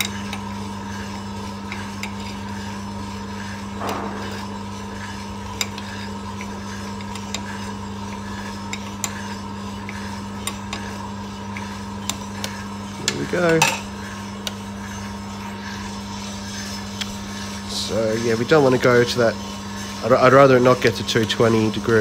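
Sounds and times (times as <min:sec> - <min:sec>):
coffee roaster humming: 0:00.0 - 0:22.0
metal trier scraping: 0:03.4 - 0:07.7, 0:12.8 - 0:22.0.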